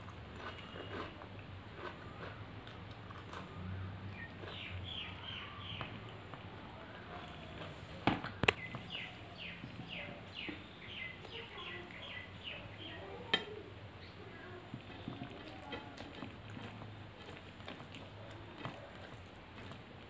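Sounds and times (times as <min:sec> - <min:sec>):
chewing: 0:00.0 - 0:12.6, 0:14.3 - 0:20.0
bird chirping: 0:04.1 - 0:06.1, 0:08.3 - 0:14.2
dishes clicking: 0:13.3 - 0:13.6
rice mixed by hand: 0:14.3 - 0:20.0.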